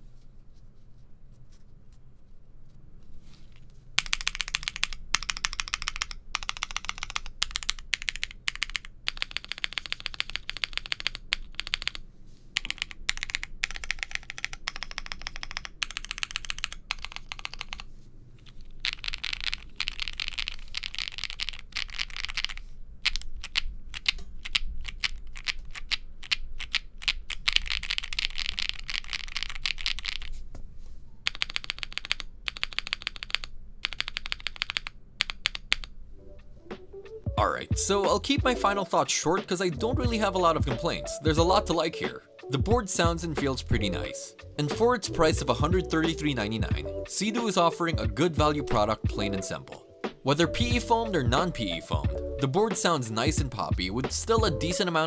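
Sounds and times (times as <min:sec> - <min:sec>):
mechanical keyboard typing: 0:04.0 - 0:12.0, 0:12.6 - 0:30.3, 0:31.2 - 0:36.0.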